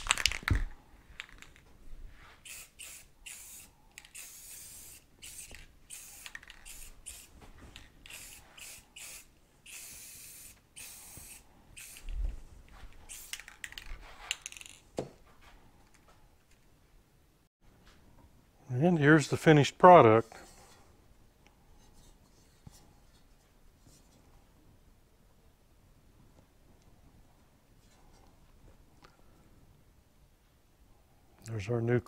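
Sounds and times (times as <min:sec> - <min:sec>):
spray paint can hissing: 0:02.4 - 0:07.4, 0:08.0 - 0:12.2, 0:13.1 - 0:13.8.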